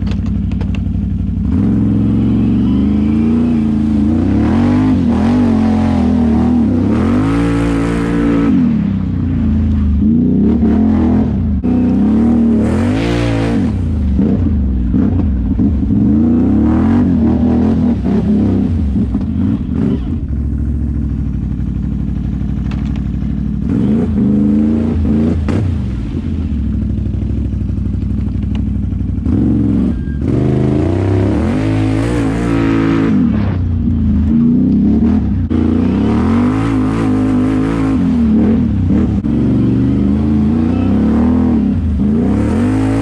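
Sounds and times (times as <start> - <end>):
atv engine revving: 0.0 - 43.0.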